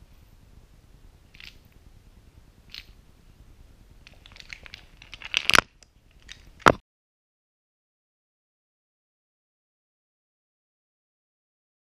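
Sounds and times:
puppet clattering on floor: 4.0s - 6.8s.

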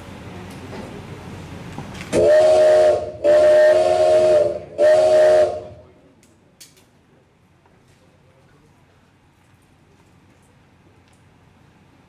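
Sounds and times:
steam locomotive whistle: 2.1s - 5.9s.

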